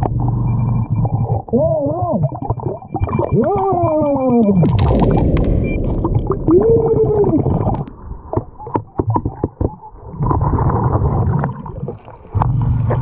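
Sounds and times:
underwater air bubbling: 5.8s - 13.0s.

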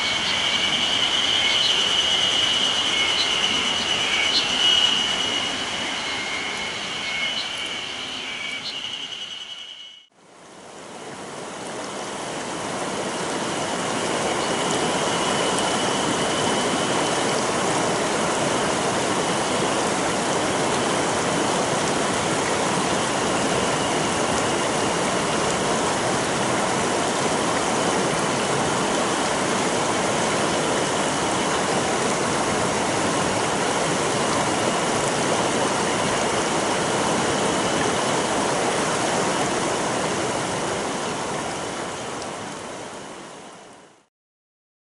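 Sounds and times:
river rushing over rocks: 10.5s - 43.7s.

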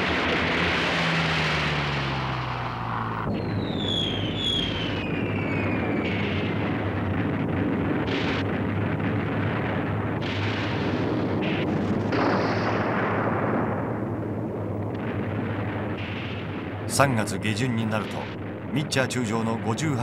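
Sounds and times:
bombs exploding: 0.0s - 20.0s
falling whistle: 3.3s - 6.2s.

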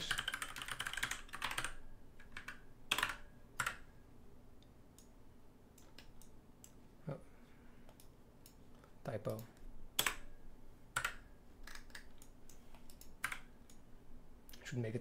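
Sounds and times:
computer keyboard keystrokes: 0.0s - 3.9s, 9.3s - 10.3s, 10.9s - 13.8s.

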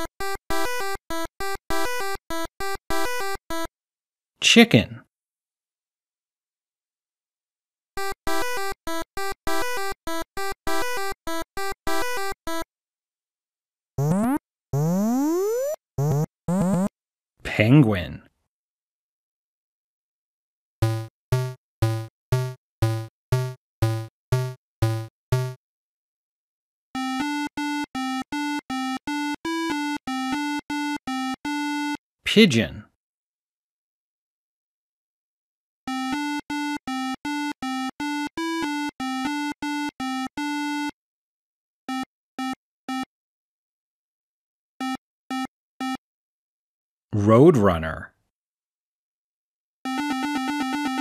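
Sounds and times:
buzzy eight-bit synth note: 20.8s - 25.6s.

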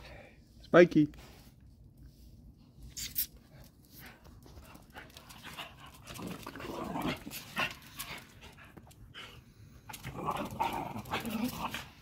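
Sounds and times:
dogs panting: 3.6s - 6.6s, 7.2s - 10.0s.

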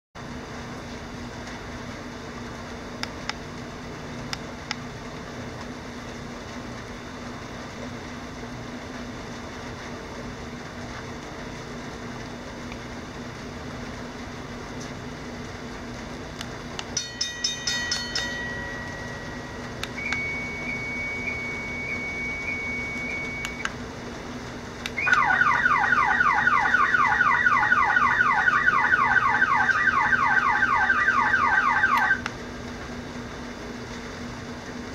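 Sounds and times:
low steady hum: 0.2s - 34.9s
electronic siren: 18.6s - 23.7s, 25.0s - 32.3s.

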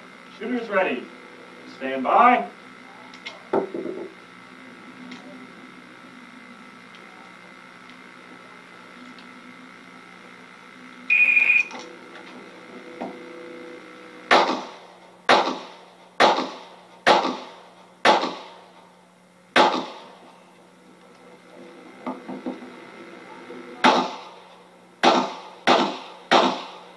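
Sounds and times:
shot timer beep: 11.1s - 11.8s
pistol shots: 14.3s - 18.6s, 19.6s - 20.2s, 23.8s - 24.4s, 25.0s - 26.9s.

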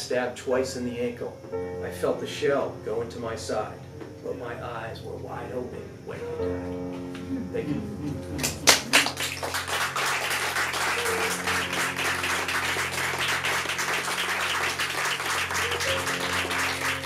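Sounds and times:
soft background music: 0.0s - 17.0s
audience applauding: 8.4s - 17.0s.

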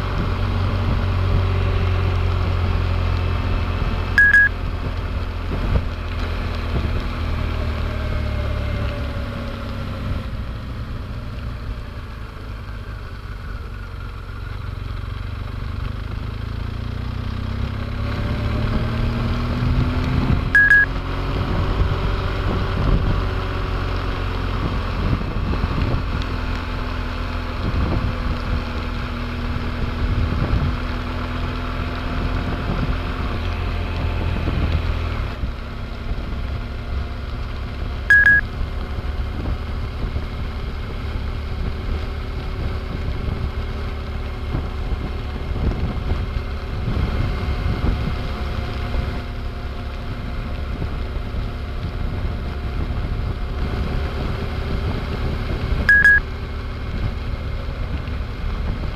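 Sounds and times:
motorcycle engine running: 0.0s - 9.3s, 10.1s - 34.8s, 35.6s - 58.9s
wind and rain on microphone: 0.0s - 58.9s
short electronic beep: 4.2s - 4.5s, 20.6s - 20.9s, 38.1s - 38.4s, 55.9s - 56.2s.

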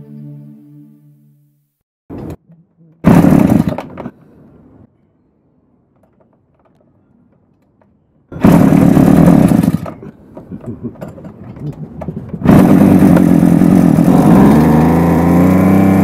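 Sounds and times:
small two-stroke engine running: 3.0s - 4.1s, 8.3s - 16.0s.

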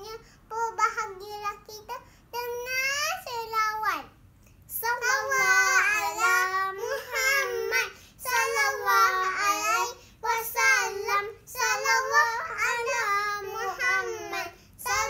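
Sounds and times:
children singing unaccompanied: 4.8s - 15.0s.

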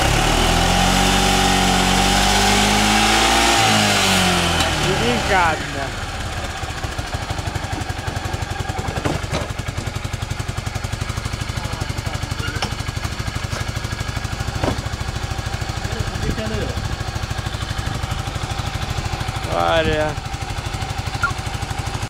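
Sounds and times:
scooter engine idling: 4.4s - 22.0s.

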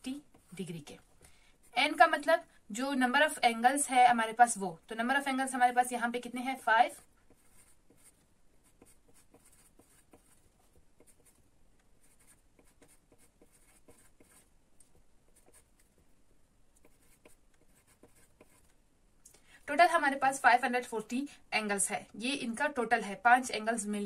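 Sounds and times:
pencil scratching on paper: 0.1s - 2.0s, 6.3s - 16.1s, 16.8s - 18.8s.

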